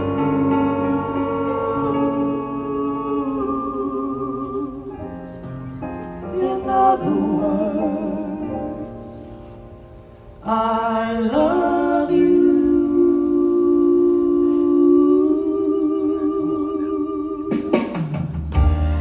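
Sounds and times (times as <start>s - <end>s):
male vocal group singing harmony: 0.0s - 5.3s, 6.2s - 9.4s, 10.4s - 17.9s
band backing music: 0.0s - 10.4s, 17.4s - 19.0s.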